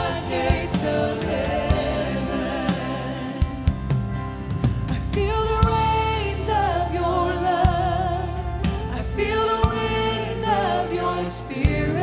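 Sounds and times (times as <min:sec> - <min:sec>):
steady drum beat: 0:00.0 - 0:06.0
live band with bass: 0:00.0 - 0:12.0
woman singing into microphone: 0:04.9 - 0:12.0.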